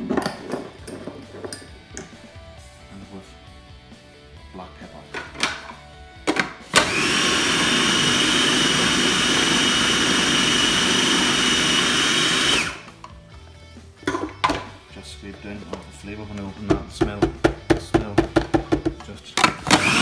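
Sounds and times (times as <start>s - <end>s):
food processor whining: 6.7s - 13.0s, 19.5s - 20.0s.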